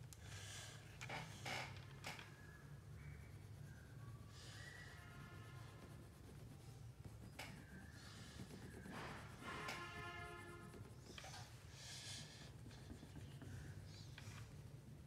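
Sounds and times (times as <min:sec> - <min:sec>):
crayon scratching on paper: 0:03.0 - 0:14.6.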